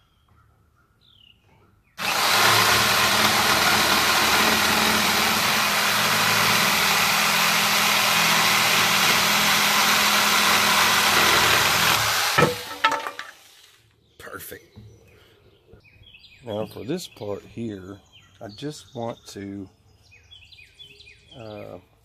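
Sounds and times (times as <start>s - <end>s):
electric saw cutting wood: 2.0s - 13.8s.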